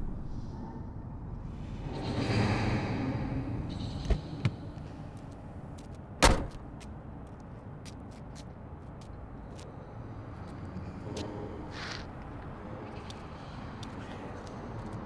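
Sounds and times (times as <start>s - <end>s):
low rumble: 0.0s - 4.0s
car door latch clicks: 6.2s - 6.6s
heavy car door slam: 6.2s - 6.6s.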